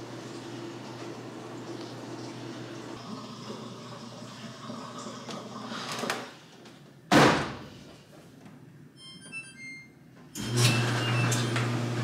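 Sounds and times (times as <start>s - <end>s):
dryer door thump: 7.1s - 7.6s.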